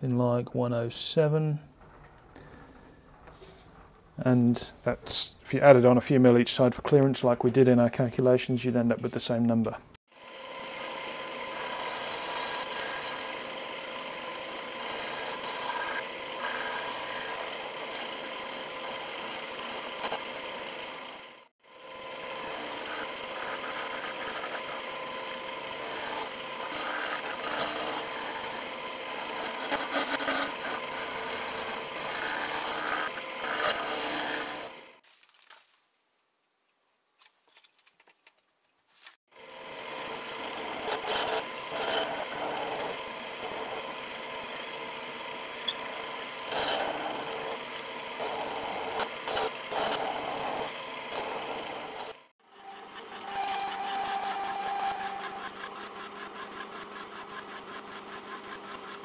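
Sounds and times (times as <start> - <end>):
end mill cutting steel: 10.1 - 35.0, 39.3 - 59.0
milling machine motor: 10.1 - 35.0, 39.3 - 59.0.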